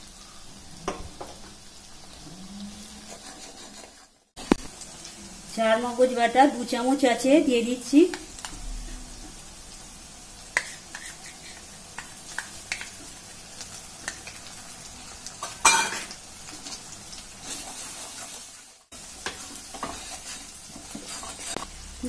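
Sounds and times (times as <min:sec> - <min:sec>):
masala sizzling in oil: 0:00.0 - 0:22.0
metal spatula scraping pan: 0:02.9 - 0:04.2, 0:10.6 - 0:12.2, 0:19.2 - 0:21.7.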